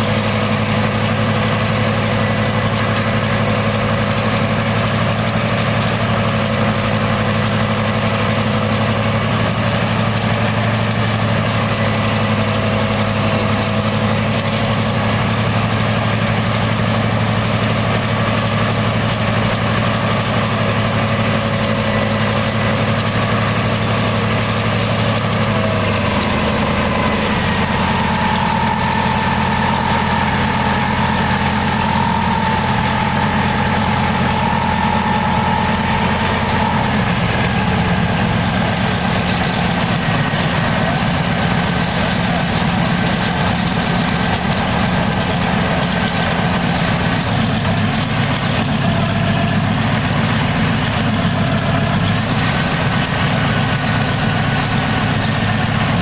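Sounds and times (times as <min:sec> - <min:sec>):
higher engine tone: 0:00.0 - 0:56.0
radial aircraft engine running: 0:00.0 - 0:56.0.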